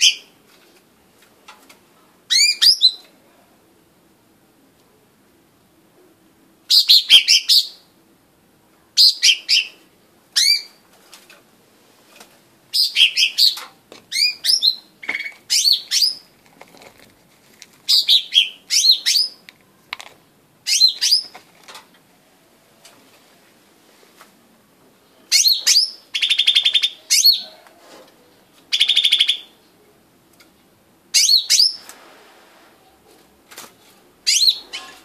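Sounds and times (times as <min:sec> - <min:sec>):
bird singing high chirps: 0:12.8 - 0:16.2, 0:20.7 - 0:21.3, 0:28.7 - 0:29.5, 0:34.3 - 0:35.0.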